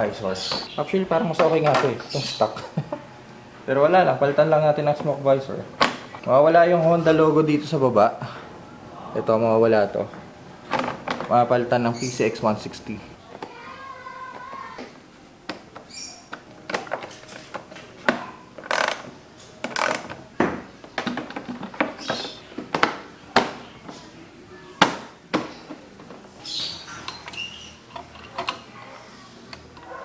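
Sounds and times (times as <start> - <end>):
tools and plastic parts clicking: 15.5 - 20.2, 26.8 - 28.7.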